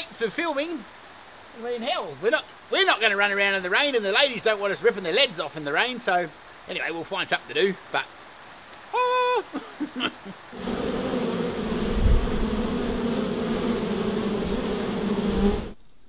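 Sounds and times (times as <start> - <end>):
honey bees buzzing: 10.6 - 15.8.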